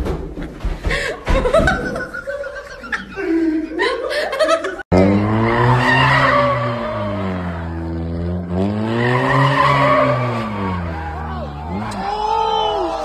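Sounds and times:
car engine revving: 0:04.9 - 0:12.6
tyres squealing: 0:08.8 - 0:12.9.

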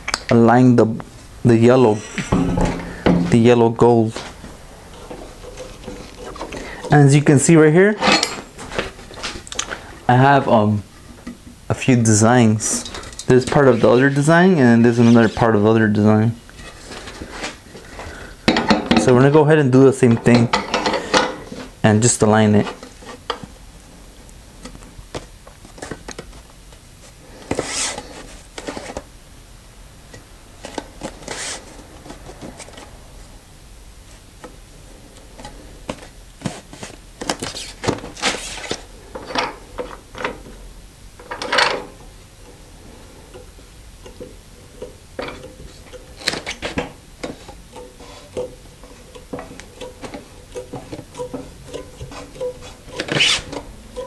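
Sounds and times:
screen frame knocking and rubbing: 0:02.2 - 0:03.6.

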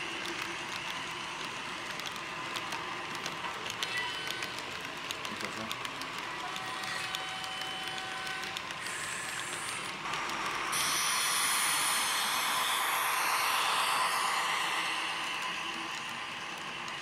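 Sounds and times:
wagons clicking over rails: 0:00.0 - 0:10.6
model locomotive rushing noise: 0:00.0 - 0:17.0.

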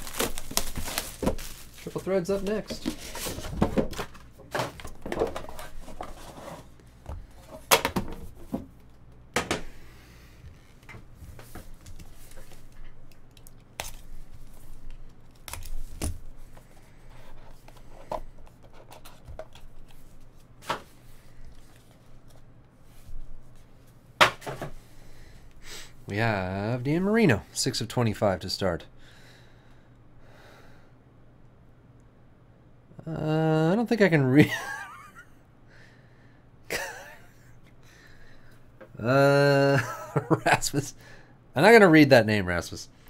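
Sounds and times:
cardboard scraping and rustling: 0:00.0 - 0:06.8.

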